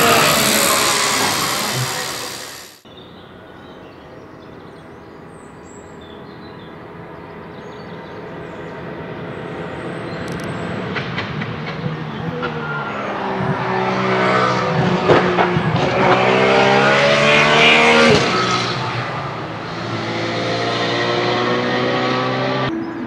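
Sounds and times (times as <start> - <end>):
loud car engine: 0.0 - 2.8, 11.4 - 22.7
sharp clicks: 0.0 - 2.8
racing car engine approaching: 10.8 - 22.8.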